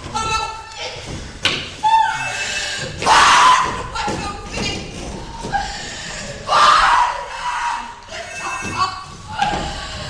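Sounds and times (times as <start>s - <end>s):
loud scream: 6.5s - 8.0s.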